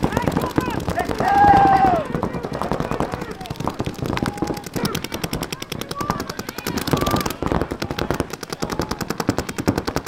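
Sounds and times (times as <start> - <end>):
paintball markers firing rapidly: 0.0 - 10.0.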